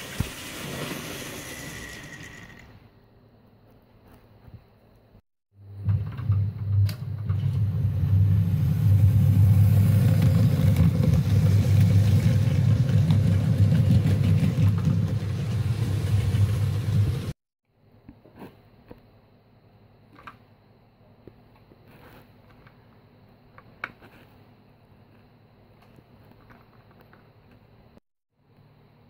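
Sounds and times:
model train wheels rumbling on track: 0:00.0 - 0:02.8, 0:07.4 - 0:17.4.

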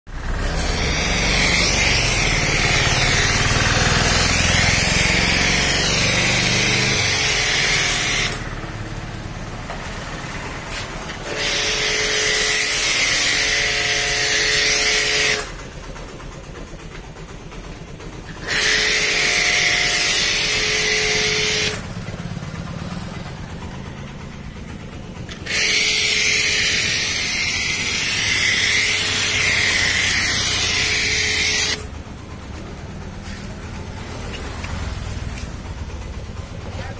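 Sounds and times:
motor humming: 0:00.1 - 0:36.9
pressure washer spray hissing: 0:00.2 - 0:08.3, 0:25.4 - 0:31.8.

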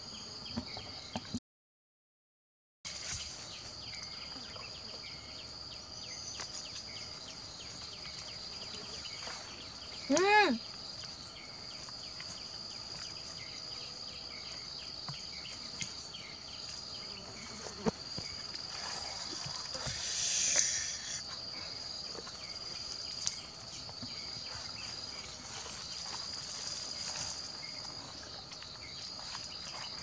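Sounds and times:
insect chirping: 0:02.9 - 0:30.0
high-pitched insect drone: 0:18.8 - 0:21.3.

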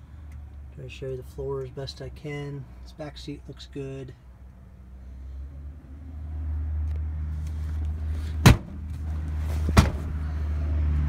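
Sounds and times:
sharp knocks inside car: 0:08.4 - 0:08.8, 0:09.7 - 0:10.1.

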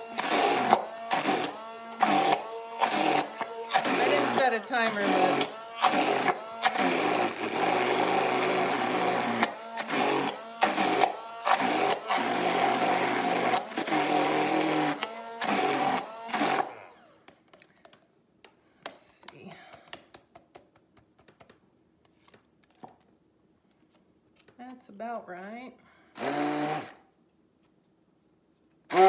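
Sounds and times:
immersion blender running: 0:00.0 - 0:17.3, 0:26.2 - 0:27.0.

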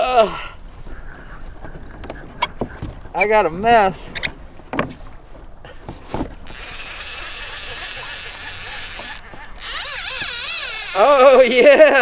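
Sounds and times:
fishing reel buzzing: 0:06.4 - 0:11.7.

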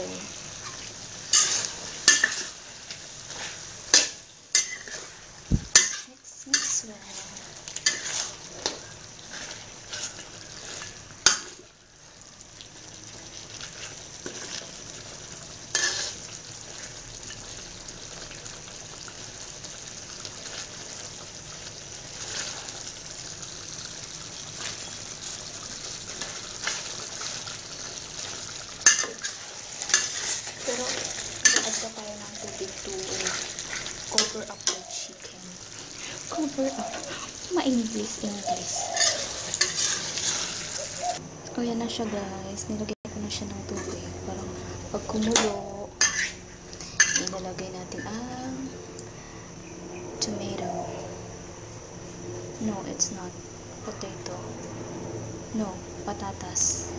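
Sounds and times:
food sizzling: 0:00.0 - 0:56.9
spoon stirring in pan: 0:00.6 - 0:11.7, 0:15.7 - 0:17.0, 0:24.5 - 0:37.4, 0:38.3 - 0:41.0, 0:45.3 - 0:47.4.

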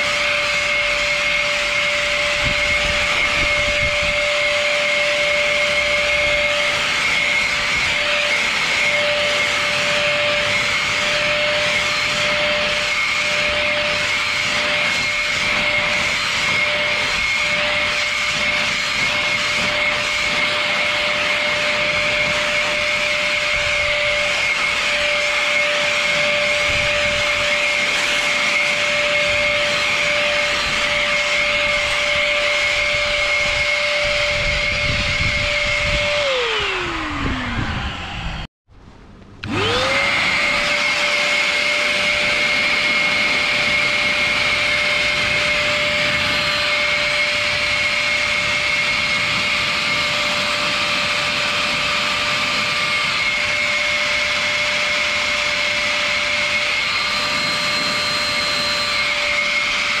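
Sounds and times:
vacuum motor blower whine: 0:00.0 - 0:38.5, 0:39.1 - 1:00.0.

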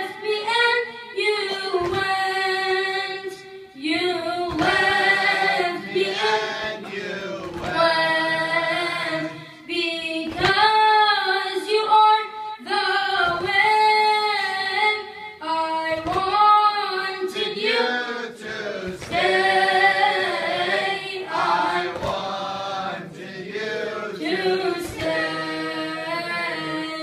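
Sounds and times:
boy singing unaccompanied lament: 0:00.0 - 0:06.9, 0:07.6 - 0:18.4, 0:24.1 - 0:27.0.

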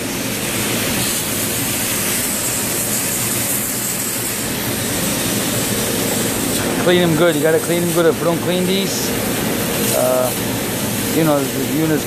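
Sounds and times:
water jet hissing into metal strainer: 0:00.0 - 0:12.0.

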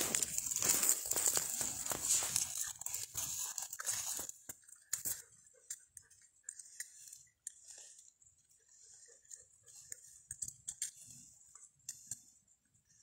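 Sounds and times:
crunching in dry leaves: 0:00.0 - 0:05.2.

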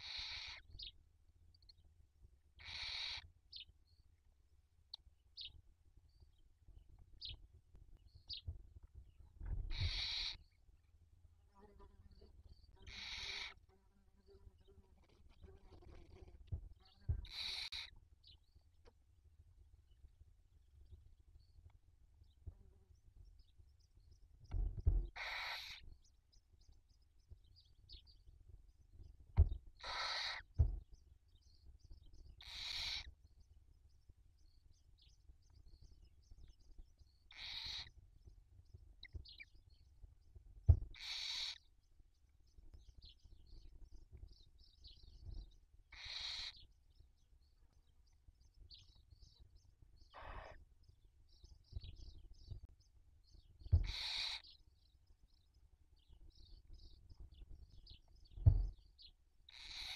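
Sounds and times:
owls hissing calls: 0:00.0 - 0:00.7, 0:02.6 - 0:03.2, 0:09.7 - 0:10.4, 0:12.9 - 0:13.6, 0:17.2 - 0:18.0, 0:25.2 - 0:25.8, 0:29.8 - 0:30.6, 0:32.4 - 0:33.1, 0:37.3 - 0:37.9, 0:41.0 - 0:41.6, 0:45.9 - 0:46.6, 0:50.2 - 0:50.6, 0:53.8 - 0:54.5, 0:59.5 - 0:59.9
low bumps: 0:24.4 - 0:25.2, 0:29.3 - 0:29.8, 0:40.6 - 0:41.0, 0:58.3 - 0:58.8
dull thumps: 0:24.5 - 0:25.2, 0:29.4 - 0:29.7, 0:30.6 - 0:30.8, 0:40.7 - 0:41.0, 0:53.7 - 0:53.9, 0:58.4 - 0:58.8
faint high peeps: 0:50.1 - 0:50.6.

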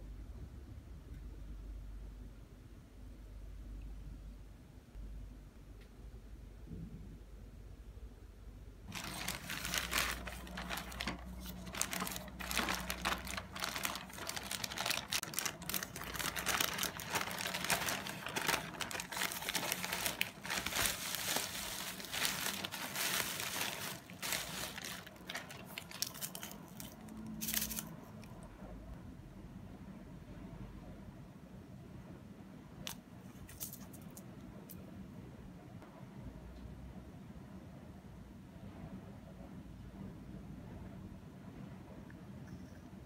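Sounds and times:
plastic packaging crinkling: 0:08.9 - 0:28.0.

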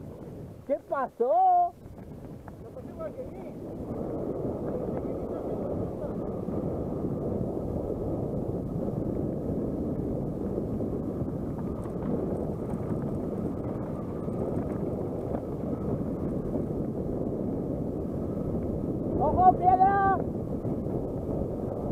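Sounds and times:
wind noise on microphone: 0:00.0 - 0:21.9
bike tyres rumbling on rocks: 0:01.7 - 0:21.9.

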